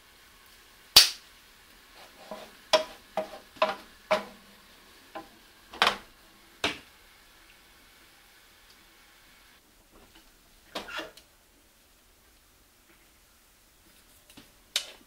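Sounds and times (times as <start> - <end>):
wooden spatula clacking on a pan: 2.3 - 4.5.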